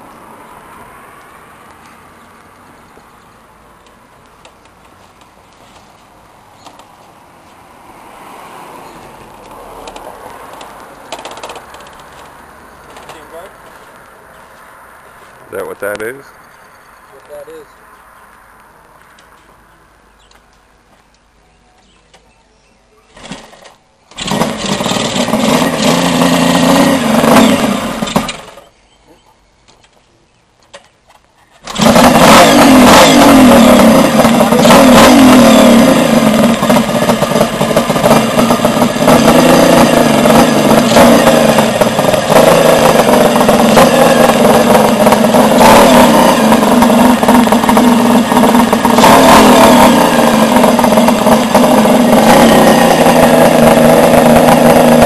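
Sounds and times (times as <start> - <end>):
motorcycle engine running: 24.1 - 28.7, 31.7 - 55.0.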